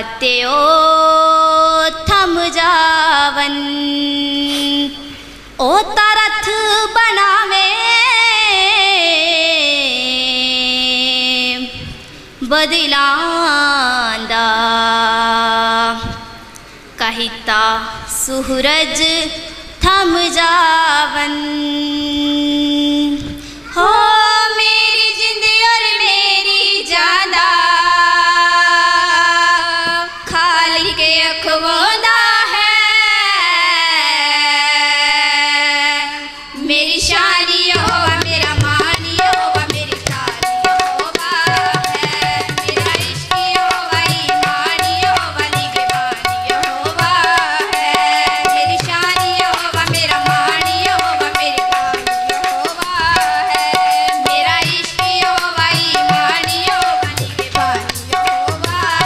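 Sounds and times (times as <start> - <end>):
women singing devotional song: 0.0 - 59.0
tabla rhythm: 36.8 - 59.0.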